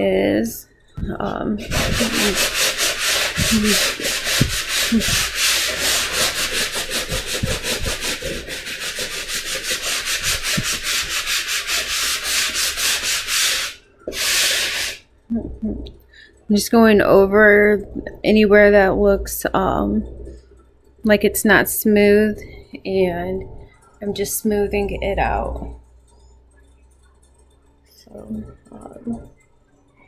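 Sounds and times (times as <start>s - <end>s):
sanding sponge scrubbing wall: 1.6s - 15.0s.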